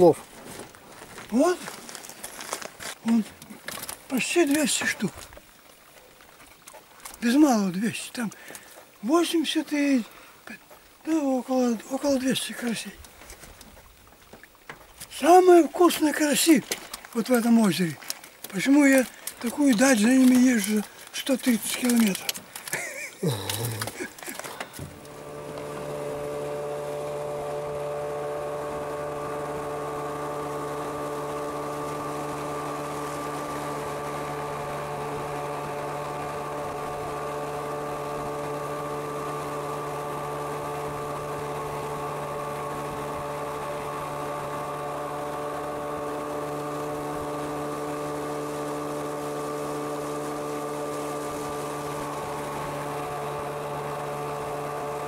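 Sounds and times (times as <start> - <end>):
motorboat engine droning: 0.0 - 55.0.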